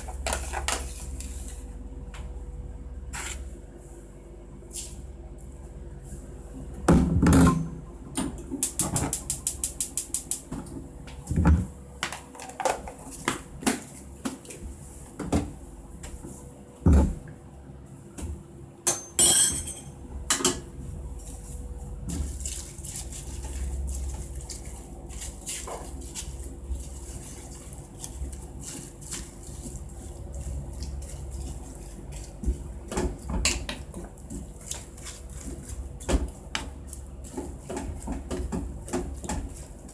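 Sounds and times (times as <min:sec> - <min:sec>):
cabbage leaves piled into pot: 0:21.2 - 0:32.8.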